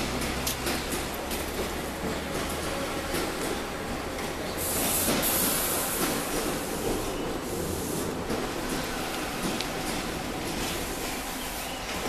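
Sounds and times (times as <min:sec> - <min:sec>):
train wheels rumbling on rails: 0:00.0 - 0:12.0
rushing hiss: 0:04.6 - 0:11.7.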